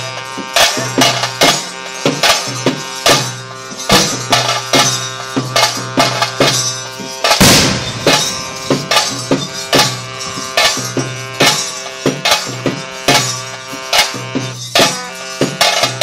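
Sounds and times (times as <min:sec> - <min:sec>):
drums beating steadily: 0:00.0 - 0:16.0
sustained held tones: 0:07.4 - 0:13.0.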